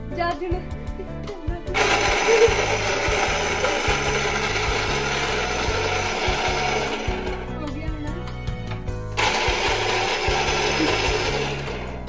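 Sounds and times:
electric food chopper whirring: 1.8 - 7.6, 8.7 - 12.0.

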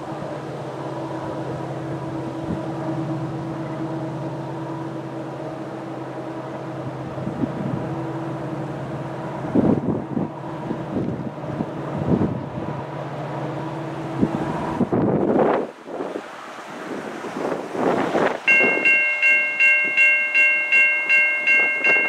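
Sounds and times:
diesel locomotive engine running: 0.0 - 16.2, 16.8 - 22.0
wind buffeting microphone: 6.8 - 8.0, 8.8 - 13.0, 14.0 - 20.1, 20.9 - 22.0.

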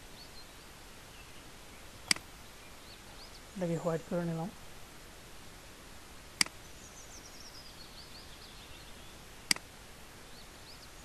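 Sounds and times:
steady low hiss: 0.0 - 11.0
faint high chirping: 6.4 - 9.6, 10.2 - 11.0.

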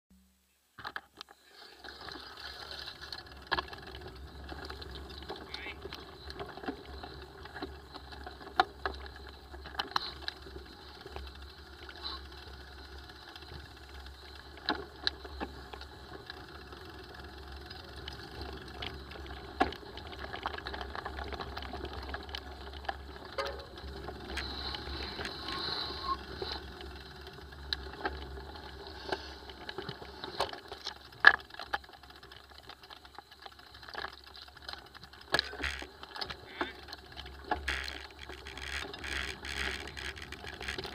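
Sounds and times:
mountain bike rattling: 0.9 - 40.9
bike knocking on stones: 14.6 - 25.6.

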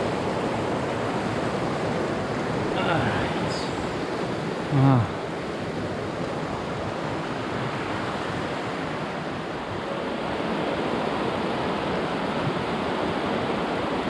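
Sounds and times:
creek rushing over rocks: 0.0 - 8.1.

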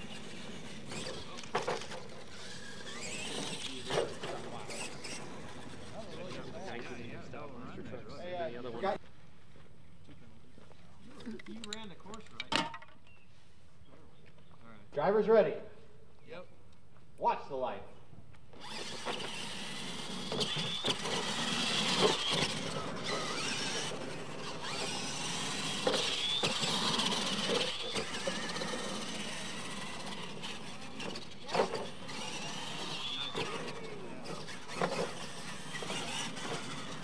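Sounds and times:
electric motors whining: 0.0 - 9.0, 18.5 - 37.0
toy trucks knocking on landing: 11.5 - 13.0.

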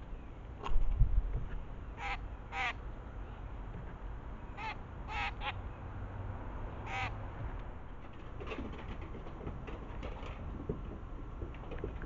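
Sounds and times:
crows cawing: 2.0 - 2.8, 4.6 - 5.6, 6.9 - 7.2.

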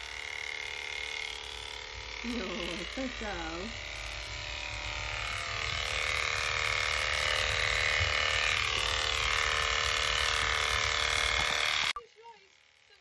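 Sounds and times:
electric horse clippers humming: 0.0 - 13.0.

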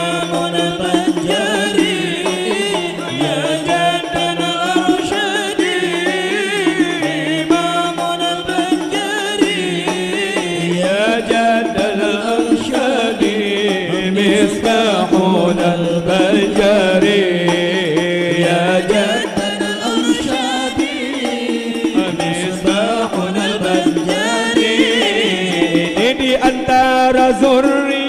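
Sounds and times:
frame drums: 0.0 - 28.0
man singing devotional refrain: 0.0 - 28.0.

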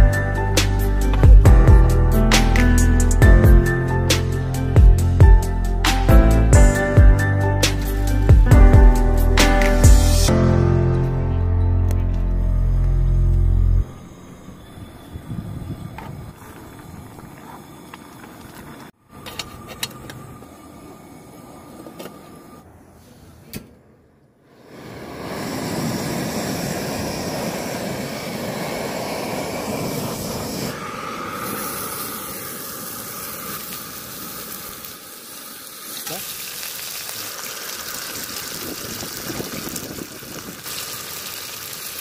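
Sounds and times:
gas burner hissing: 24.4 - 42.0
meat sizzling on griddle: 28.5 - 42.0.

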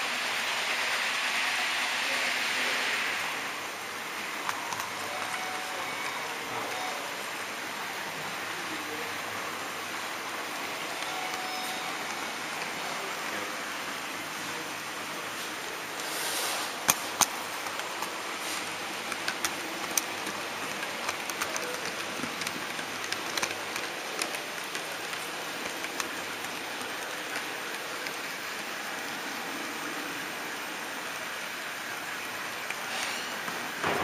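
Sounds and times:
model train rolling hiss: 0.0 - 3.6, 15.4 - 17.0
wheels clicking on rails: 15.9 - 30.2.

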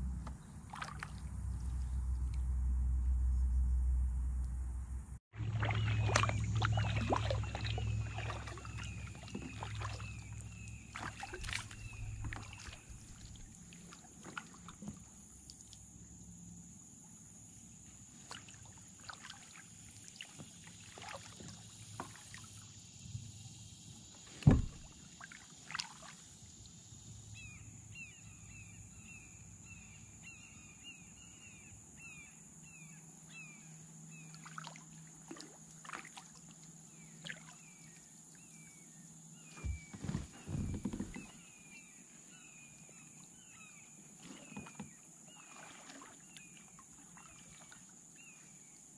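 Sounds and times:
low rumble: 0.0 - 8.3
paddle dripping and splashing: 0.2 - 2.4, 5.3 - 15.9, 18.1 - 22.8, 24.2 - 26.6, 34.2 - 38.6, 39.4 - 48.9
knock against kayak hull: 24.4 - 24.9, 39.6 - 41.3.

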